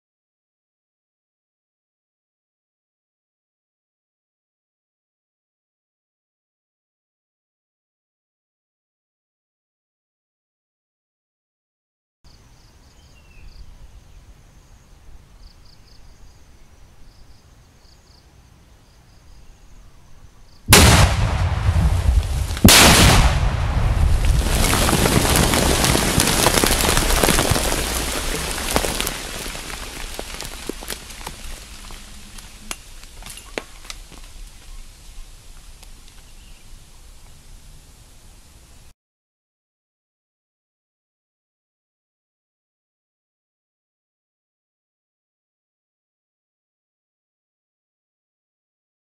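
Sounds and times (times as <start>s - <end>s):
loud explosions: 20.7s - 29.0s
debris falling to ground: 20.7s - 34.4s.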